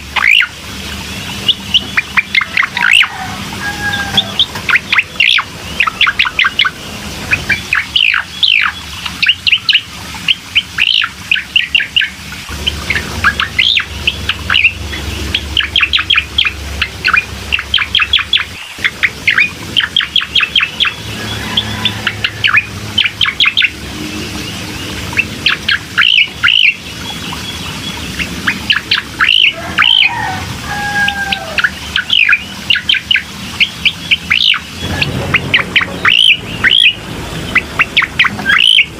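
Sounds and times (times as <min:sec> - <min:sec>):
bird chirping: 0:00.0 - 0:38.9.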